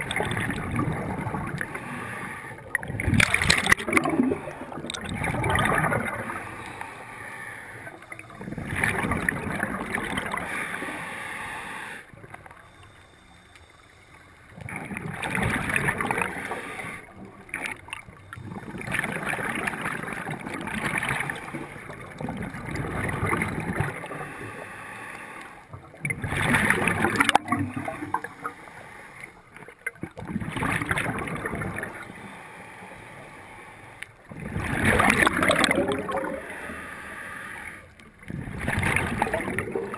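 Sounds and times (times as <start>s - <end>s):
underwater regulator breathing: 0.0s - 5.1s, 6.0s - 14.7s, 15.8s - 17.4s, 23.5s - 25.7s, 26.7s - 29.7s, 31.8s - 39.9s.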